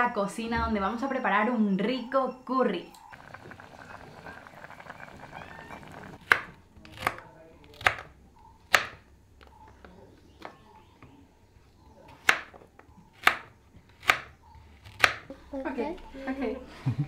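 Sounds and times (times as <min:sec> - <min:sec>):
knife chopping on cutting board: 0:06.2 - 0:08.1, 0:08.7 - 0:09.0, 0:12.2 - 0:12.6, 0:13.2 - 0:15.3.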